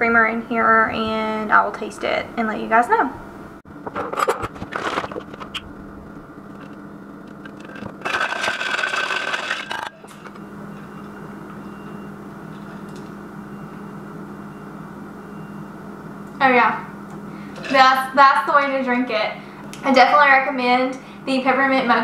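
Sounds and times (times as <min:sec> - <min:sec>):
ice clinking against metal: 0:07.6 - 0:10.0.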